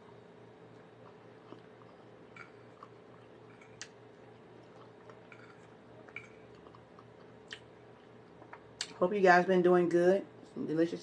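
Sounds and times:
chewing and mouth smacking: 0:00.7 - 0:09.0.

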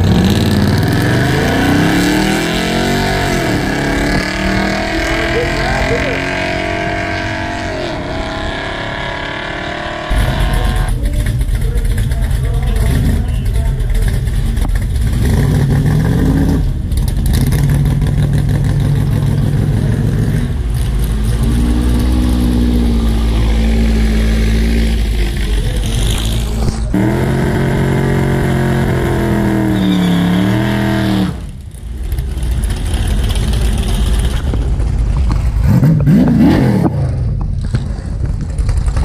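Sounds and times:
car engine revving hard: 0:00.0 - 0:10.9, 0:21.2 - 0:31.5, 0:35.6 - 0:37.2.

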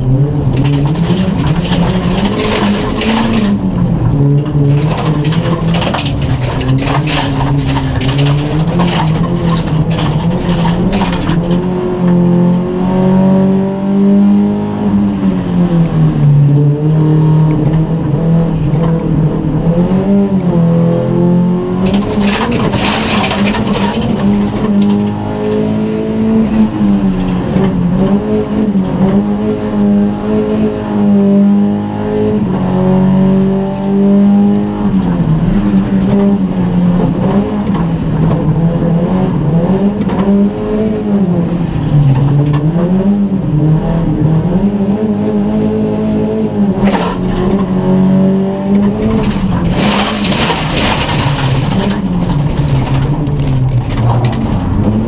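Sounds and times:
car engine revving: 0:00.0 - 0:55.0
gravel hitting car underbody: 0:48.7 - 0:55.0.

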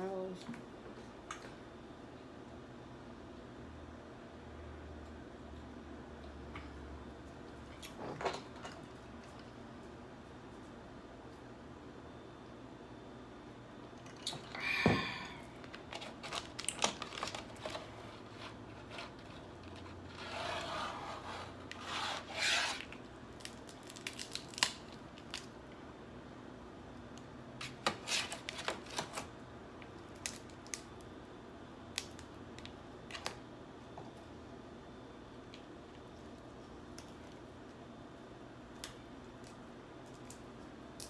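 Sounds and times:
crab shells cracking: 0:22.8 - 0:25.6, 0:29.9 - 0:31.0.

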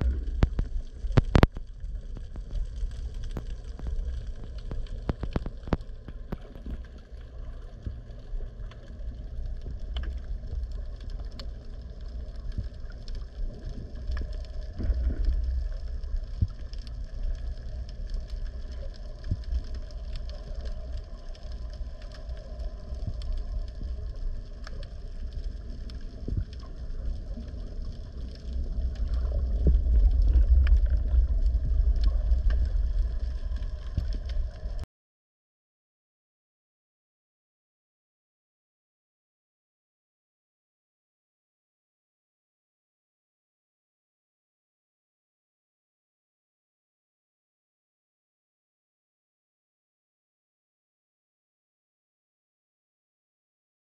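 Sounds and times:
small clicks underwater: 0:00.0 - 0:34.8
underwater rumble of moving water: 0:00.0 - 0:34.8.

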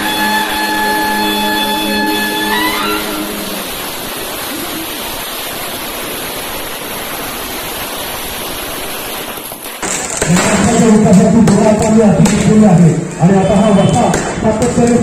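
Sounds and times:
street crowd din: 0:00.0 - 0:05.2, 0:09.7 - 0:15.0.

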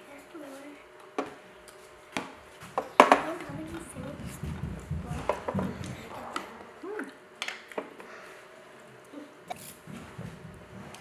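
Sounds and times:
low muffled sound: 0:02.7 - 0:07.0.

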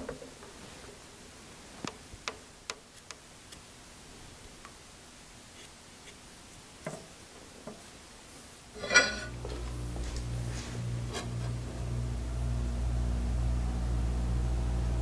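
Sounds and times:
low electric hum: 0:06.3 - 0:15.0
sharp metallic clank: 0:08.8 - 0:09.6.

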